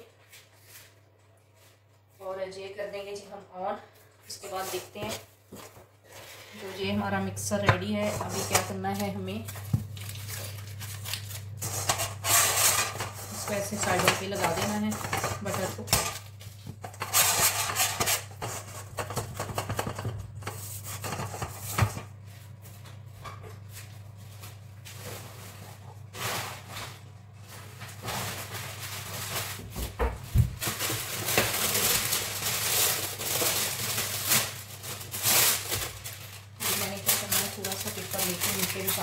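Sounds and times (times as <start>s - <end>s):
steady low hum: 2.2s - 39.0s
hand rubbing inside cake tin: 6.7s - 9.6s, 11.6s - 22.6s.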